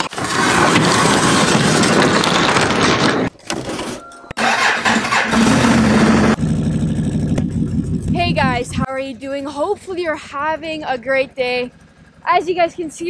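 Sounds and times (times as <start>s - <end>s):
electric starter cranking: 0.1s - 6.4s
loud noisy rumble: 4.4s - 8.9s
atv engine idling: 4.4s - 13.0s.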